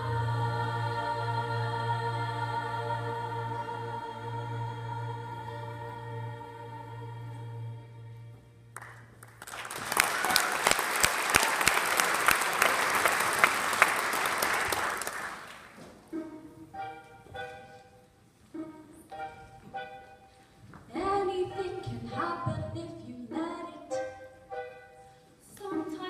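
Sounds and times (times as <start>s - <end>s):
choir singing with accompaniment: 0.0s - 8.7s
audience applause: 8.8s - 15.8s
instrumental music: 15.8s - 26.0s.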